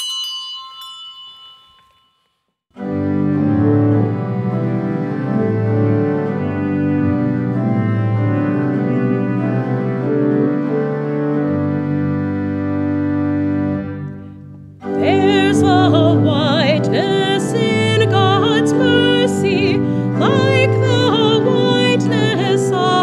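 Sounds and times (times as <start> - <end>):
small bell ringing: 0.0 - 2.6
church organ playing chords: 2.8 - 23.0.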